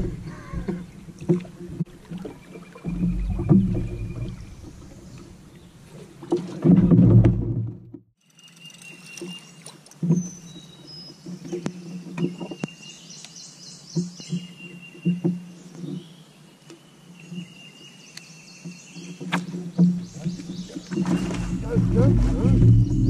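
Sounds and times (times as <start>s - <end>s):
low hum: 20.8s - 23.0s.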